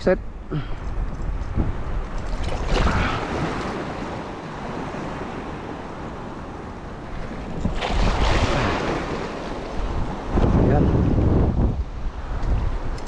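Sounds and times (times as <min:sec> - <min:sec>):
wind buffeting microphone: 0:00.0 - 0:13.0
small waves splashing: 0:00.4 - 0:10.8.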